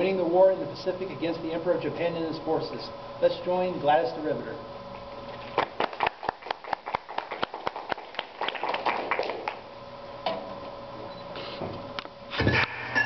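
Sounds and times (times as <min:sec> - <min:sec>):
small audience applause: 0:05.6 - 0:09.6.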